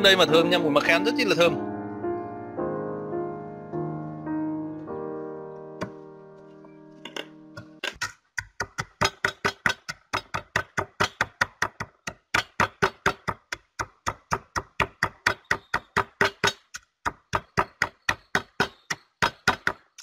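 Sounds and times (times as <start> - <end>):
wooden pestle pounding seeds: 7.6 - 20.0.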